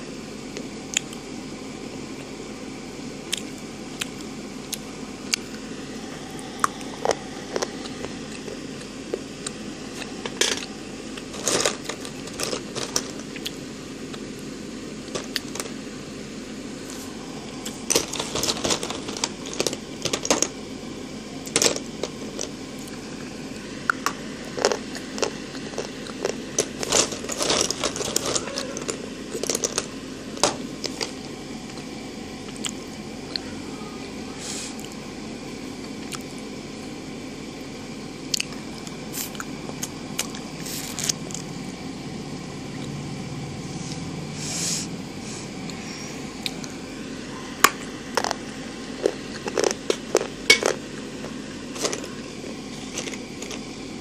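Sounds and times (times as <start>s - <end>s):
low steady hum: 0.0s - 54.0s
pencil sticks clattering: 11.4s - 13.2s, 17.9s - 20.5s, 21.5s - 22.5s, 26.6s - 31.1s.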